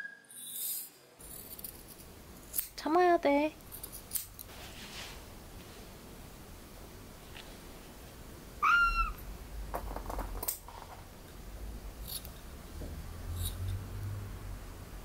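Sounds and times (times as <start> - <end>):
small scissors snipping: 2.5 - 2.8, 3.7 - 4.5
kitten meowing: 8.6 - 9.2.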